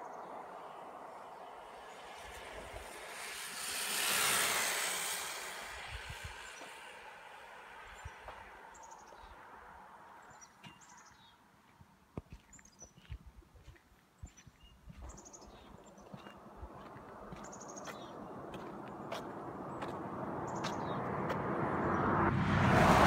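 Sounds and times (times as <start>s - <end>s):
rc car passing at high speed: 0.2s - 8.9s, 17.5s - 23.0s.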